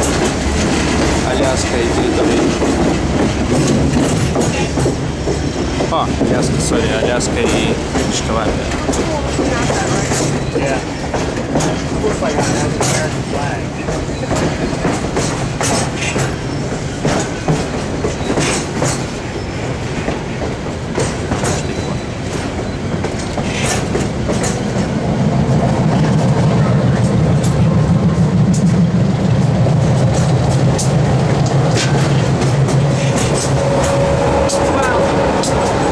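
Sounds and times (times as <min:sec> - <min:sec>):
train rumble: 0:00.0 - 0:35.9
wheels clacking on rails: 0:00.0 - 0:35.9.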